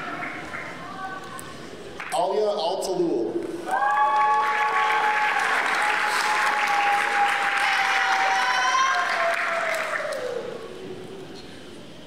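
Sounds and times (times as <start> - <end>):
audience applauding: 0.0 - 0.9, 3.7 - 10.7
long held cheer: 3.6 - 10.8.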